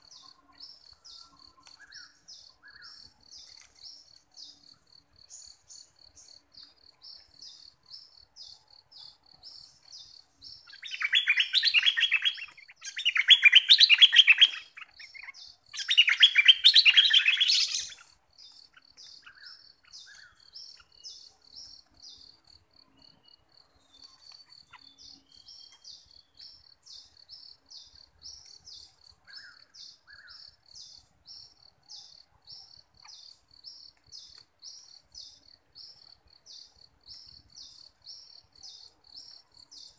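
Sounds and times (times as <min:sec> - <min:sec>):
bulbul warbling song: 0:10.6 - 0:21.8.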